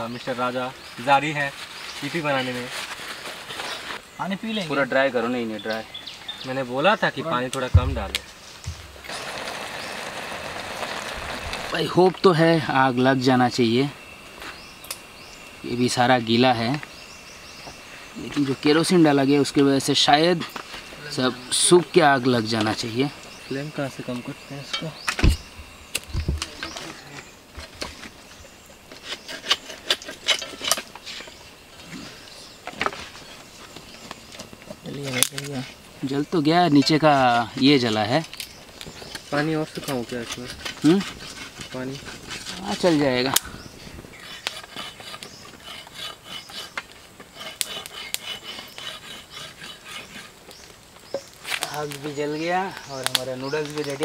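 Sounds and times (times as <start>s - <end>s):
rustling of sticks and paper: 0.2s - 4.0s, 28.8s - 54.0s
utensil scraping in cooking pot: 26.6s - 32.2s, 39.7s - 50.5s.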